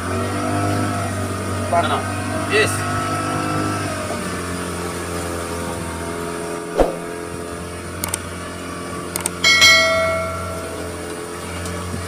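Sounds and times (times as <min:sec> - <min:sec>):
outboard motor running: 0:00.0 - 0:12.0
clicks: 0:08.0 - 0:08.2
bright ringing chime: 0:09.4 - 0:11.1.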